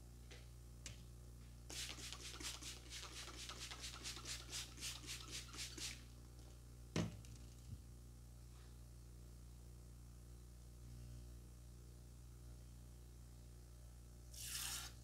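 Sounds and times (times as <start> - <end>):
gloved hands rubbing face: 1.7 - 6.0.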